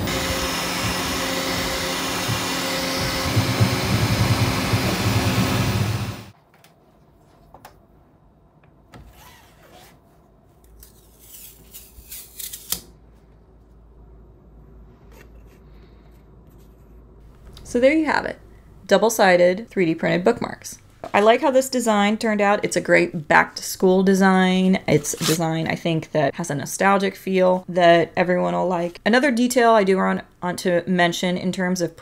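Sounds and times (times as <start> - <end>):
motor whine: 0.0 - 6.3
printer fan noise: 0.0 - 6.3.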